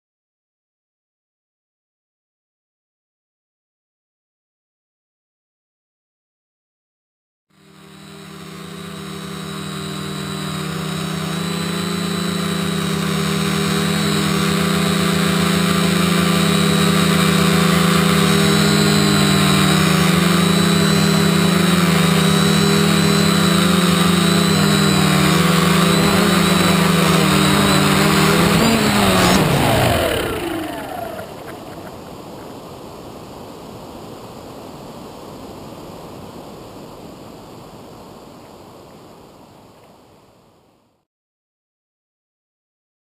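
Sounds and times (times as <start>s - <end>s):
drone motors humming: 7.6s - 32.9s.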